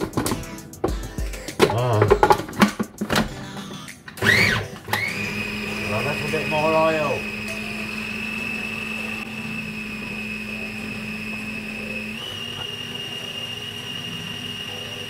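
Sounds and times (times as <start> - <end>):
food processor motor whining: 4.2 - 15.0.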